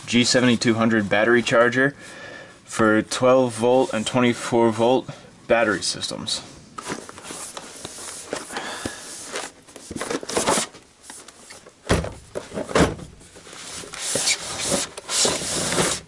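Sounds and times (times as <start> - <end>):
cardboard rubbing and scraping: 13.2 - 16.0
long sliding scrape of card: 13.6 - 16.0.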